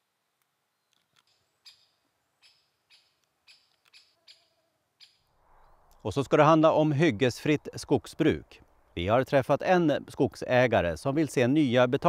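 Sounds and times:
faint bird chirps: 0.6s - 6.0s.

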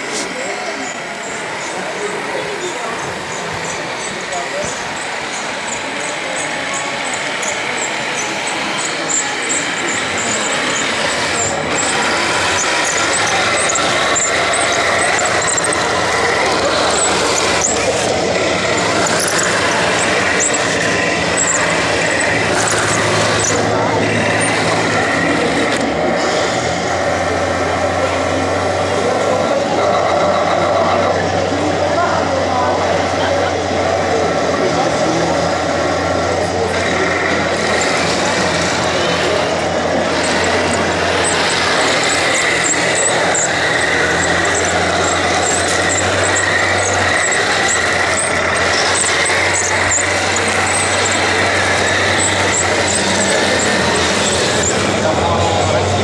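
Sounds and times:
engine humming: 0.0s - 56.0s
model tanks mechanical drone: 0.0s - 56.0s
people talking in background: 0.0s - 56.0s.

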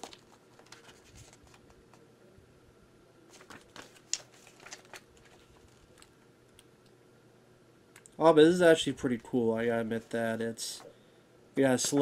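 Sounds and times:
paper pages rustling: 0.0s - 2.0s, 3.3s - 6.2s.

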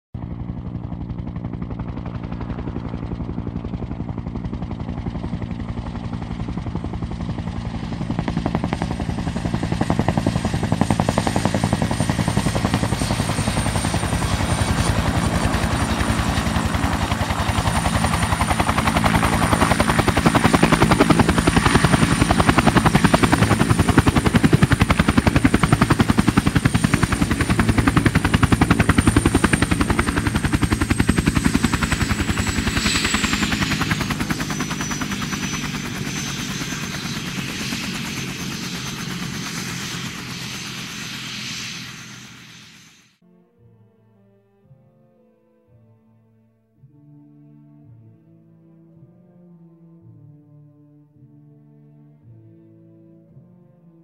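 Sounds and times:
helicopter rotor blades beating: 0.2s - 43.2s
high turbine whine: 11.1s - 43.2s.

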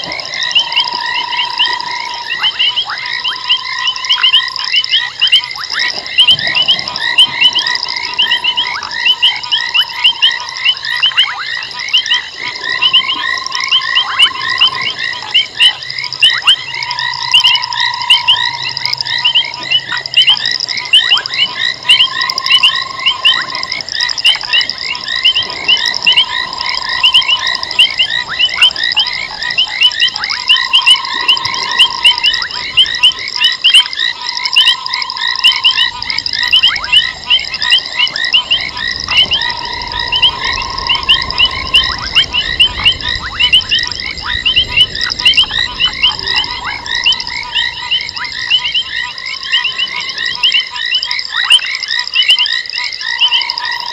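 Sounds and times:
frogs calling high-pitched: 0.0s - 53.9s
low drawn-out frog note: 12.0s - 50.4s.

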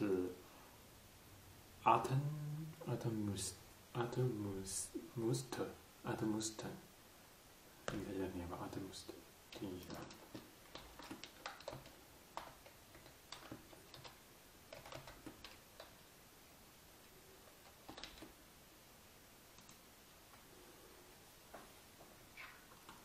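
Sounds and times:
computer keyboard and mouse clicks: 9.5s - 16.0s, 17.6s - 18.4s, 19.6s - 19.8s.

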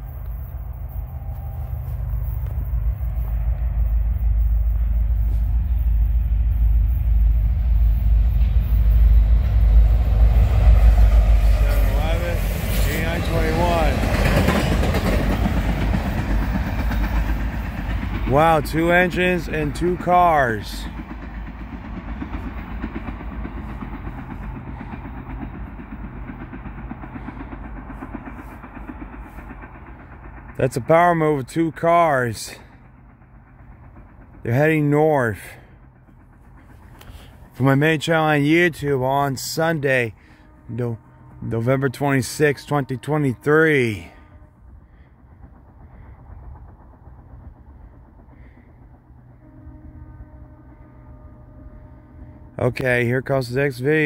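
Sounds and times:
diesel locomotive engine rumble: 0.0s - 54.0s
train wheel and rail noise: 0.0s - 54.0s.

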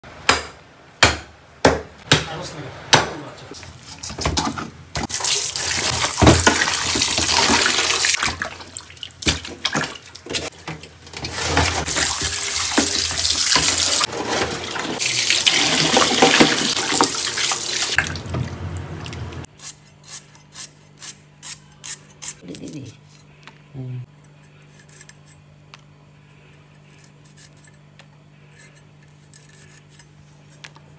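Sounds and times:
tap water running into steel basin: 5.1s - 8.9s, 11.4s - 18.5s.

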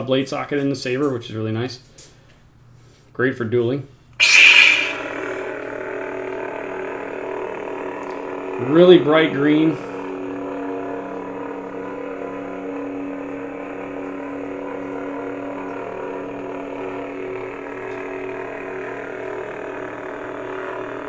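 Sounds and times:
lightsaber electric hum: 4.2s - 21.0s.

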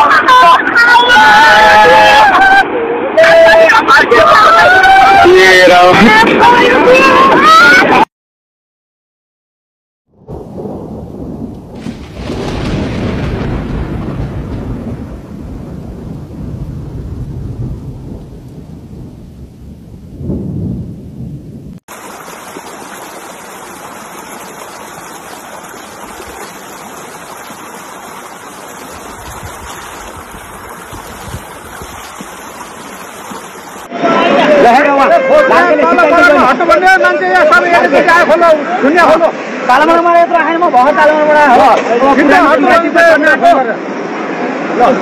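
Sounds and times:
floodwater rushing in river: 0.0s - 8.0s, 21.9s - 45.0s.

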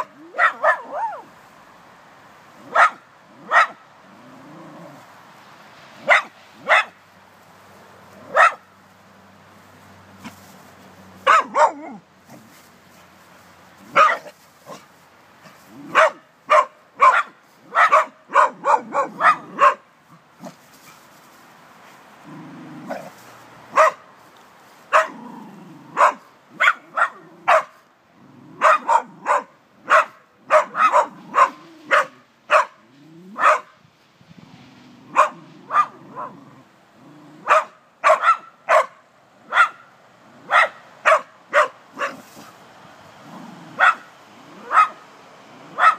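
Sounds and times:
small dogs barking: 0.0s - 1.3s, 2.6s - 3.9s, 6.0s - 7.0s, 8.1s - 8.8s, 11.2s - 12.5s, 13.8s - 20.6s, 22.8s - 24.1s, 24.9s - 27.8s, 28.4s - 33.8s, 35.0s - 36.6s, 37.2s - 42.5s, 43.6s - 45.9s.

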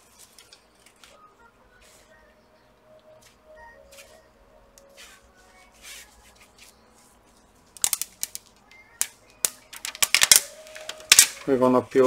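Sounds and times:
plastic film crackling as peeled: 7.8s - 11.6s.

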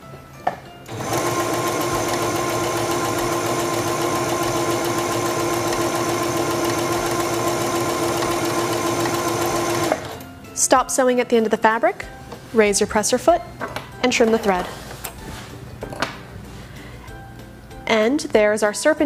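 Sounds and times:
sewing machine stitching: 0.9s - 10.2s.

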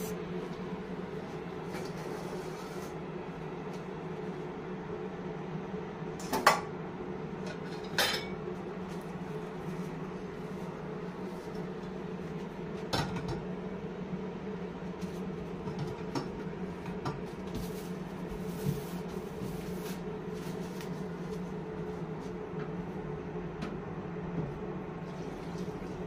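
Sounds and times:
steady low hum: 0.0s - 26.0s
dishes and pot lids clinking: 7.5s - 8.4s.

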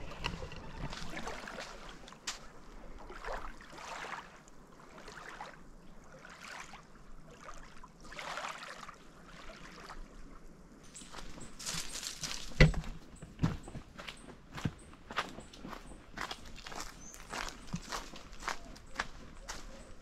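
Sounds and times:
small waves lapping at shore: 0.0s - 10.8s.

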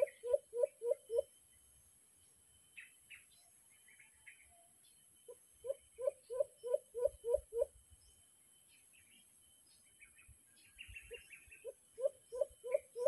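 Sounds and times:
bird hooting: 0.0s - 1.3s, 5.6s - 7.7s, 11.1s - 13.0s.

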